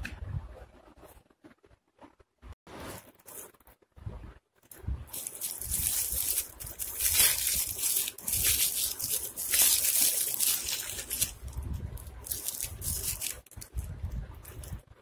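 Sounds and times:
sweet wrapper crinkling: 0:05.1 - 0:14.8.

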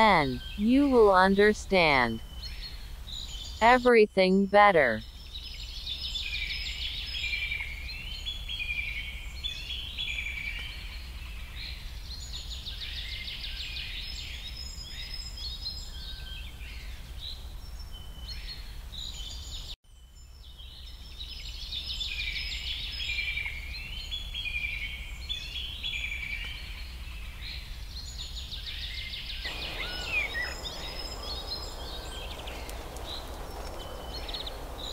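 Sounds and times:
songbirds chirping and trilling: 0:00.0 - 0:34.9
soft rushing hiss: 0:29.5 - 0:34.9
steady low hum: 0:29.5 - 0:34.9.

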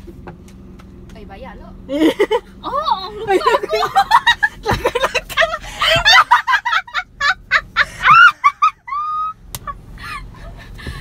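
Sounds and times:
woman laughing: 0:01.9 - 0:02.5, 0:03.1 - 0:09.4.

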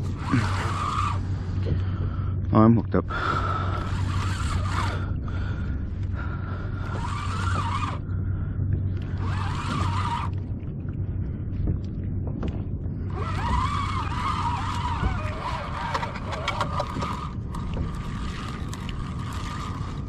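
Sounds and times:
fishing reel drag screaming: 0:00.0 - 0:01.5, 0:03.4 - 0:05.2, 0:06.7 - 0:08.1, 0:09.1 - 0:10.4, 0:13.1 - 0:20.0.

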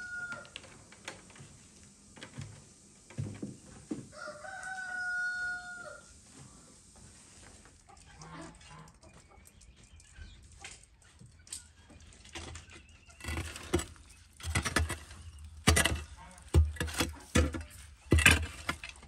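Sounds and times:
stick scraping burning charcoal: 0:12.4 - 0:19.0.

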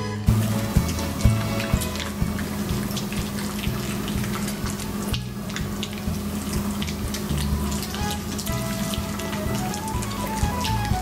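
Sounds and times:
polka music: 0:00.0 - 0:02.8, 0:07.5 - 0:11.0.

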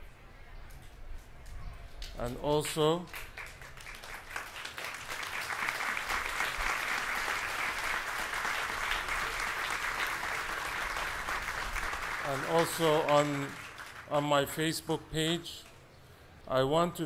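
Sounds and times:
audience applauding: 0:03.1 - 0:14.1.

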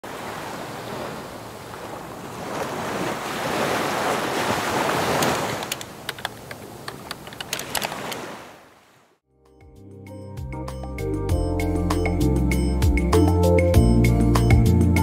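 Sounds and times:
ocean surf rushing: 0:00.0 - 0:08.8.

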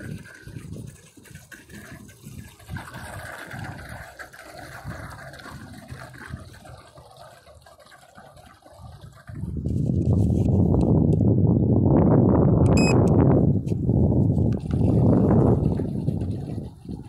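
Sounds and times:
water splashing and bubbling: 0:00.0 - 0:10.2, 0:14.4 - 0:17.0.

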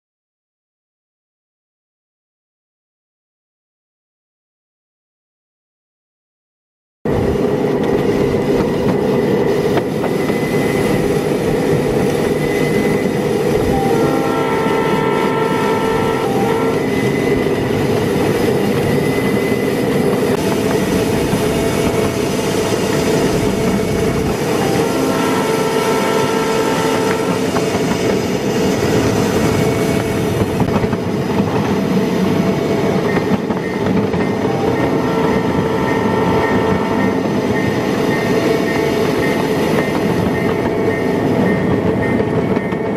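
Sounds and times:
distant train chime horn: 0:09.2 - 0:30.8, 0:32.3 - 0:42.9
snow plow rushing through ice: 0:16.9 - 0:32.9.

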